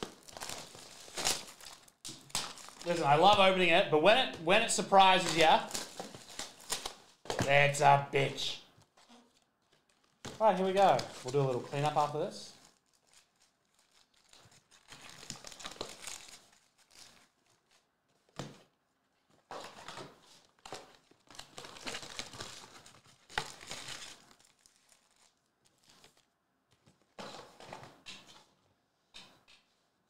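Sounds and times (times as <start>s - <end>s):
plastic wrapping crinkling and tearing: 0.0s - 3.6s, 4.5s - 7.3s, 8.8s - 18.4s, 19.6s - 27.2s.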